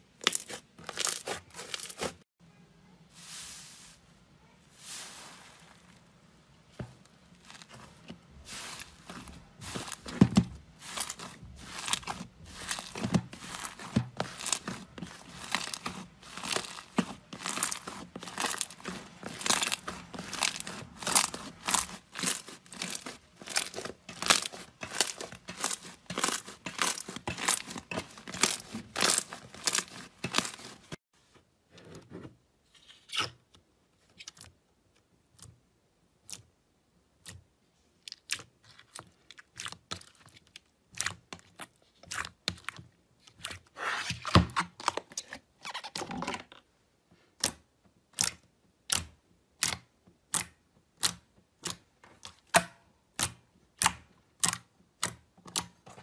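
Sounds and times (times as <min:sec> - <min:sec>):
slime crackling and crunching: 0:00.2 - 0:02.2, 0:07.3 - 0:31.0.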